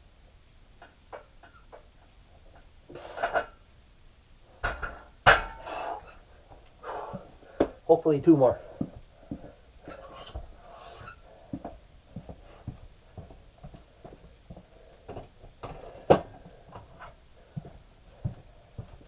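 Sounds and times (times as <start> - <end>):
person breathing: 6.8 - 7.9, 8.6 - 12.9, 13.8 - 19.0.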